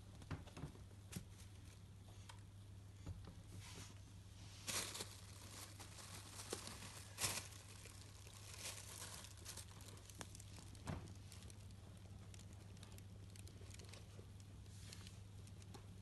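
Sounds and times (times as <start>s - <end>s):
plastic bags crinkling: 4.6s - 15.8s.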